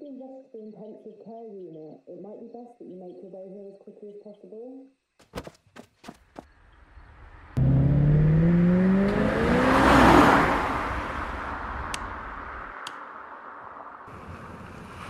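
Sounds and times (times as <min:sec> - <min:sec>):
car rushing past: 0:06.8 - 0:15.0
car engine starting and revving: 0:06.9 - 0:15.0.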